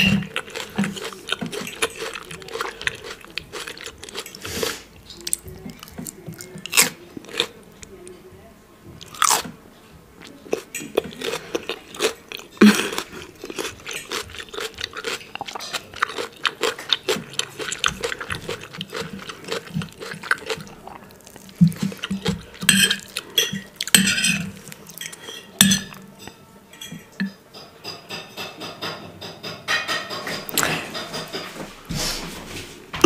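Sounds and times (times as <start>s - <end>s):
knife and fork scraping plate: 22.6s - 26.0s.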